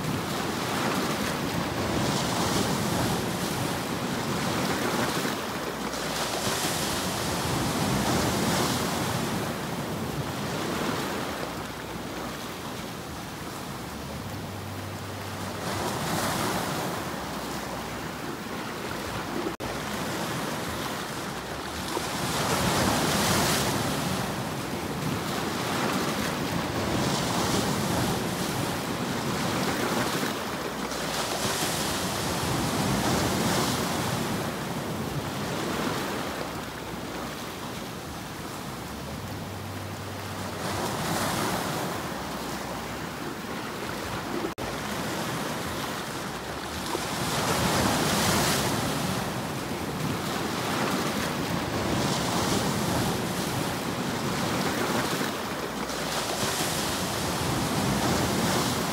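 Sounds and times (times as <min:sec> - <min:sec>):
waves breaking over rocks: 0:00.0 - 0:58.9.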